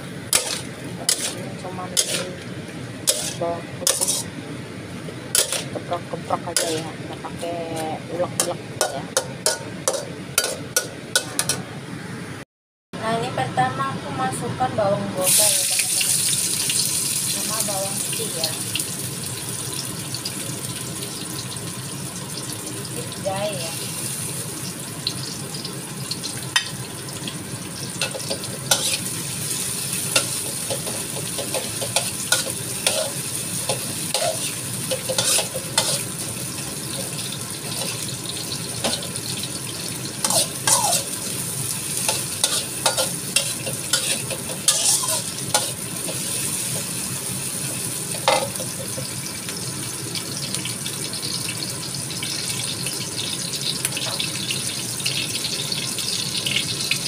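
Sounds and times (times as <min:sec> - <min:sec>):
food sizzling in oil: 0:00.0 - 0:11.5, 0:15.2 - 0:57.0
metal spatula scraping wok: 0:00.3 - 0:02.4, 0:03.0 - 0:04.3, 0:05.3 - 0:05.8, 0:06.5 - 0:07.8, 0:28.0 - 0:36.2, 0:40.2 - 0:41.3, 0:42.0 - 0:46.9.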